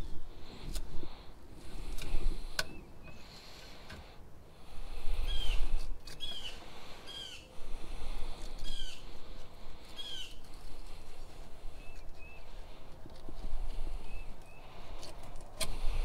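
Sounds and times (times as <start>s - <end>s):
bird calling: 5.2s - 7.8s, 8.6s - 15.1s.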